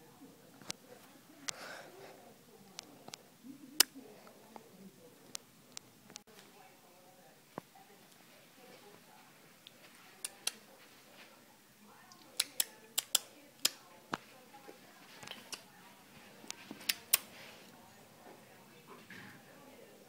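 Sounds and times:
sharp clicks and taps: 12.4 - 13.8.

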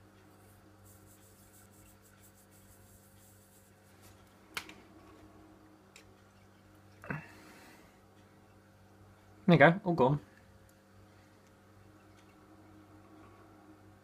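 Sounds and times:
faint room hum: 0.0 - 14.0
small ticks: 0.1 - 4.7.

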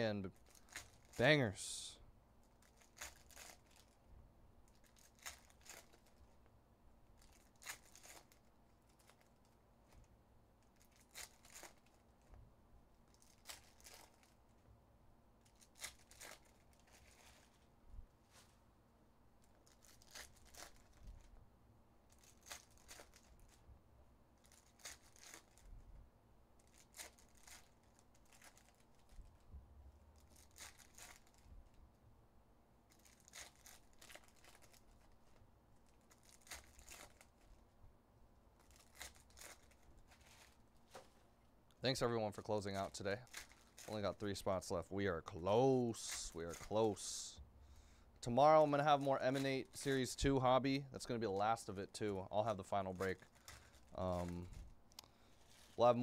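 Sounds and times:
foil card packs ripping and crinkling: 2.6 - 4.0, 7.2 - 9.3, 10.8 - 12.0, 15.5 - 17.5, 19.6 - 21.0, 24.4 - 25.6, 26.6 - 29.2, 30.2 - 31.5, 32.9 - 37.5, 38.6 - 41.1, 42.0 - 44.7, 45.9 - 47.2, 52.4 - 54.6.

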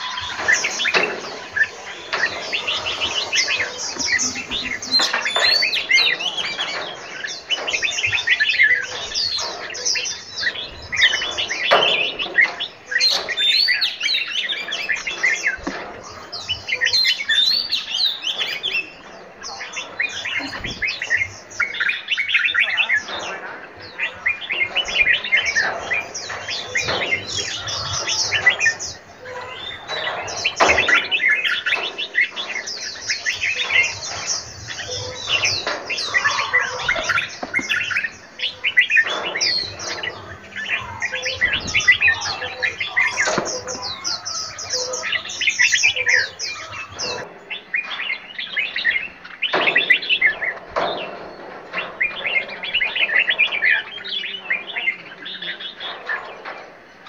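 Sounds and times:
birds chirping and singing: 0.0 - 57.0.

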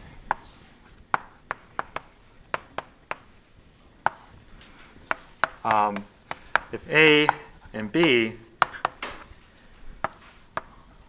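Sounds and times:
chalk tapping on chalkboard: 0.3 - 3.4, 4.0 - 4.4, 5.1 - 9.2, 10.0 - 11.0
chalk scratching: 0.3 - 4.4, 5.0 - 9.0, 10.0 - 11.0.

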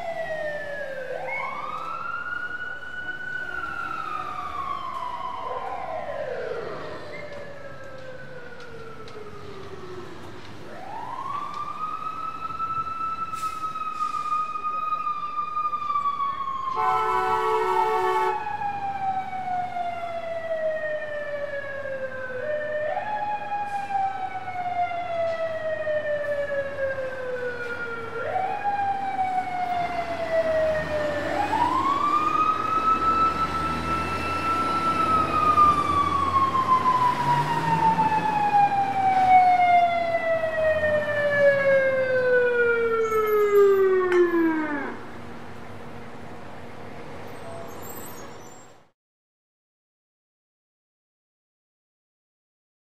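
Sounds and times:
fire truck siren winding: 15.8 - 45.1
short horn blast: 16.8 - 18.4.

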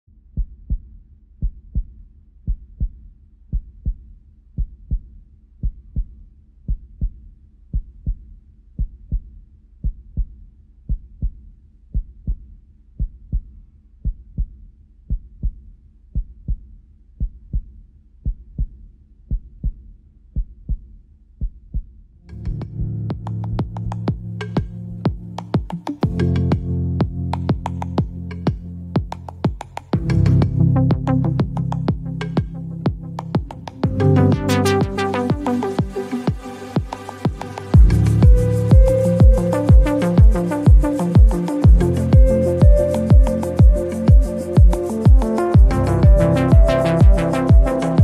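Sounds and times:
heartbeat-like double thump: 22.5 - 47.7.

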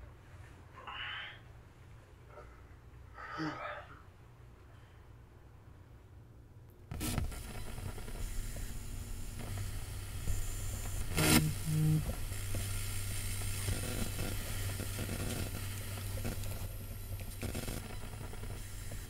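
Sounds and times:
steady electrical hum: 0.0 - 19.0
electrical sparking crackle: 6.9 - 19.0
sharp electrical zap: 6.9 - 19.0.

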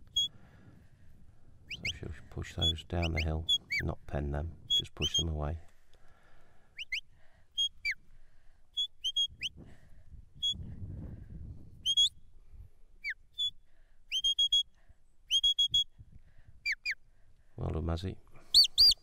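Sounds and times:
sharp whistle notes: 6.8 - 7.0, 11.8 - 12.2, 13.0 - 14.7, 15.3 - 15.9.

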